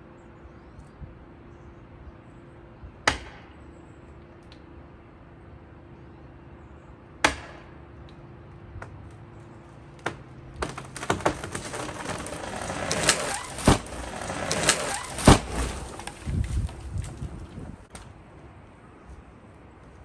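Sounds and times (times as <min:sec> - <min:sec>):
tree hitting ground with thud: 0:10.0 - 0:18.0
branches snapping through brush: 0:10.0 - 0:18.1
tree trunk cracking: 0:10.0 - 0:18.1.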